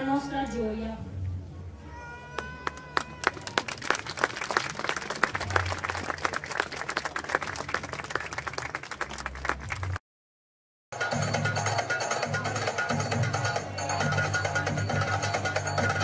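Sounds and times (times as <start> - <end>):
crowd applauding: 2.3 - 10.0.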